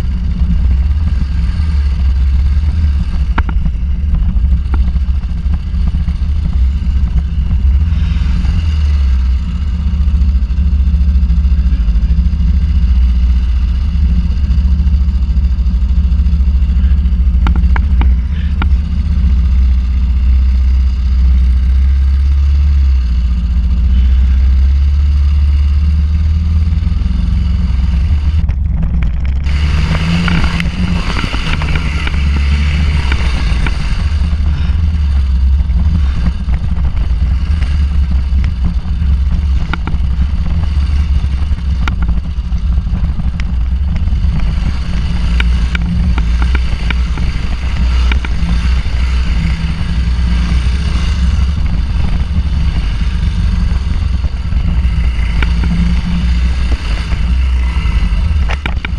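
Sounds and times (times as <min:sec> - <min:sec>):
knocks and rattles: 0:00.0 - 0:20.4, 0:27.8 - 0:58.9
motorcycle engine revving: 0:00.0 - 0:58.9.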